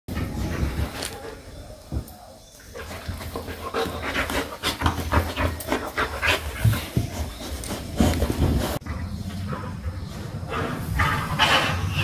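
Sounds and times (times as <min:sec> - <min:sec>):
dog panting: 0:02.8 - 0:11.9.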